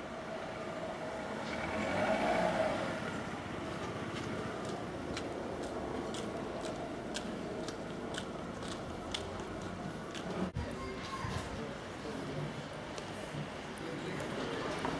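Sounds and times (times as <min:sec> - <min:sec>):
steady street traffic: 0:00.0 - 0:14.9
vehicle passing: 0:00.4 - 0:09.6.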